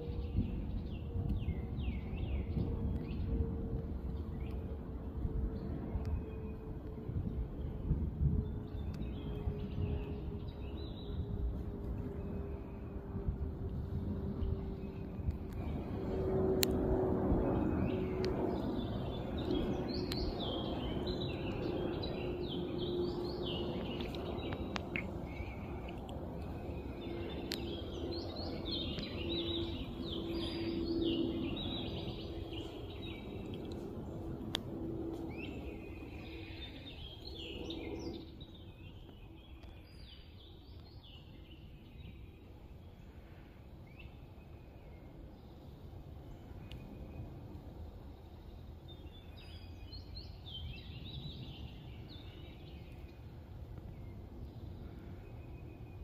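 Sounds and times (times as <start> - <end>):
low steady hum: 0.0 - 56.0
outdoor background noise: 0.0 - 56.0
steady low drone: 0.0 - 56.0
small birds chirping: 17.4 - 47.4.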